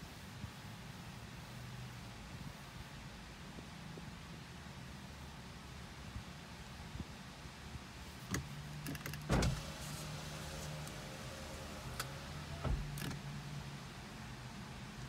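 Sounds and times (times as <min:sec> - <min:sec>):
low hum inside car: 0:08.0 - 0:15.0
window motor clunk: 0:08.3 - 0:13.6
car electric window motor: 0:08.4 - 0:13.8.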